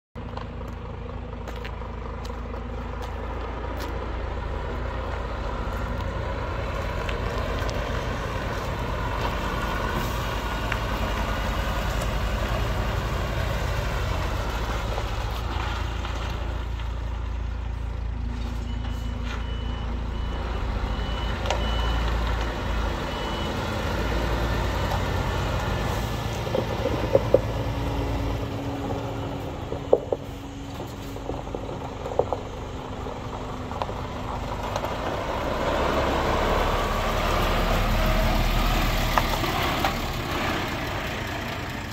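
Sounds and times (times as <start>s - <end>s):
diesel truck engine droning: 0.2s - 41.9s
reversing alarm beeping: 18.3s - 25.0s, 27.8s - 31.2s.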